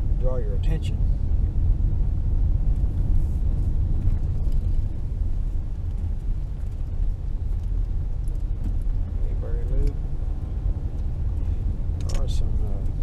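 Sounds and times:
car driving low rumble: 0:00.0 - 0:13.0.

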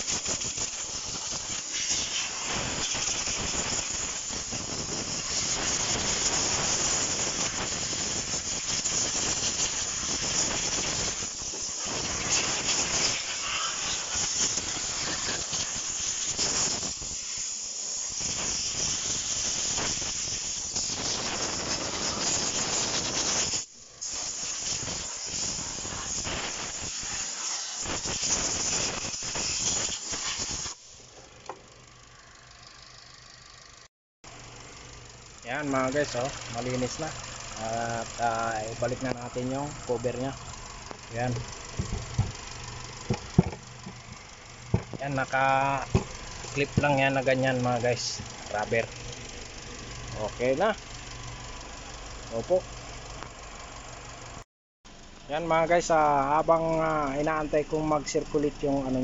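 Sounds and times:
air blow gun hissing: 0:00.0 - 0:31.0, 0:35.4 - 0:51.6.

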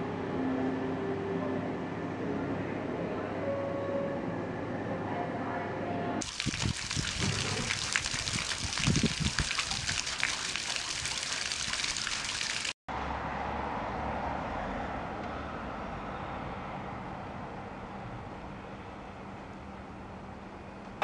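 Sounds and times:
fountain splashing into pond: 0:06.2 - 0:12.8
street traffic hum: 0:12.3 - 0:21.0.

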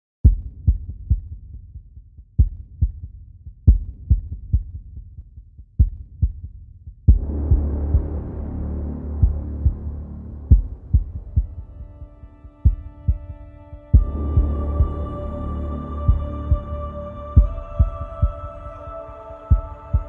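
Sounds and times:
heartbeat-like bass thumps: 0:00.2 - 0:15.4, 0:16.0 - 0:18.8, 0:19.5 - 0:20.0
low hum: 0:07.1 - 0:20.0
low drone: 0:07.2 - 0:20.0.

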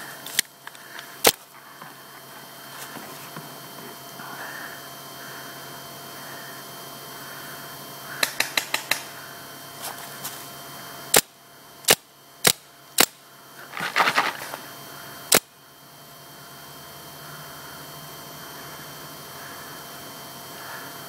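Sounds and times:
paintball markers firing: 0:08.2 - 0:09.1.

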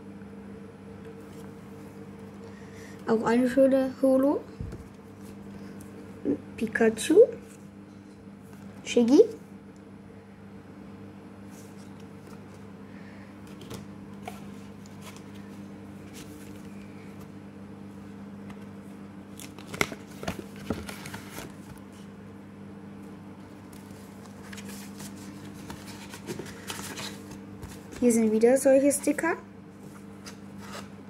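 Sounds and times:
cards and paper rustling: 0:13.4 - 0:16.8, 0:19.3 - 0:22.0, 0:23.6 - 0:29.2, 0:29.8 - 0:30.9.

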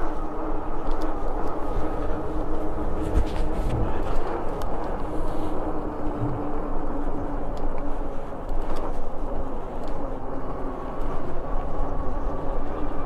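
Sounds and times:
steady hum: 0:00.0 - 0:13.0
wind rushing over microphone: 0:00.0 - 0:13.0
faint clicks: 0:00.8 - 0:01.7.

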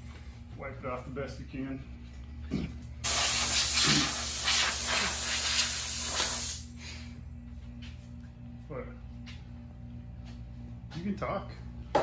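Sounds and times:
air blow gun hissing: 0:03.0 - 0:06.7.

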